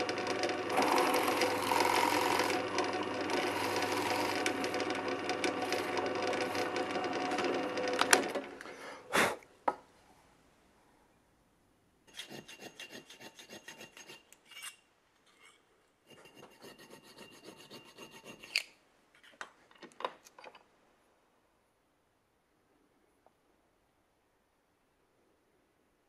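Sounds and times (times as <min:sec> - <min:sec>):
file rasping on metal: 0:00.8 - 0:07.5, 0:12.1 - 0:14.8, 0:16.1 - 0:18.7.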